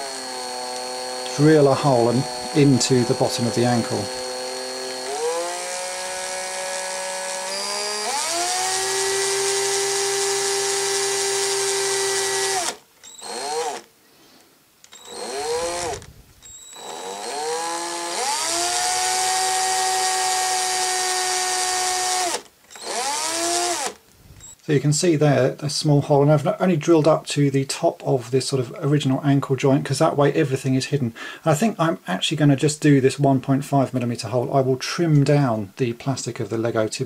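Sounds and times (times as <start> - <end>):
electric drill motor whine: 0.0 - 13.9, 14.9 - 24.6.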